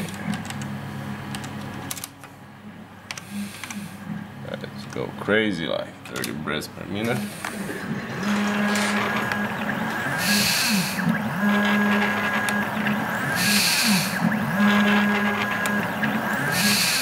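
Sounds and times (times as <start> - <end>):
stepper motor whine: 7.0 - 17.0.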